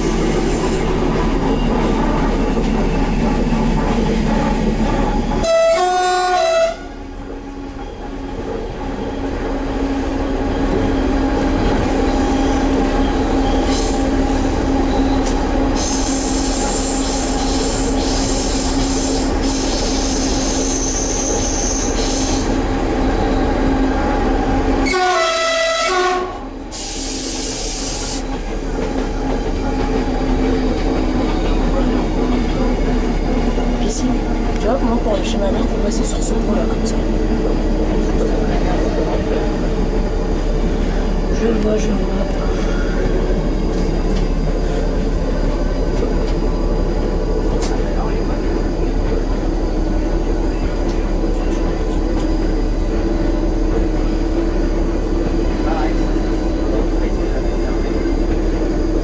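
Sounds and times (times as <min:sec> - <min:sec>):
diesel railcar drone: 0:00.0 - 0:59.0
rail noise: 0:00.0 - 0:59.0
train horn: 0:05.4 - 0:07.0, 0:24.8 - 0:26.5.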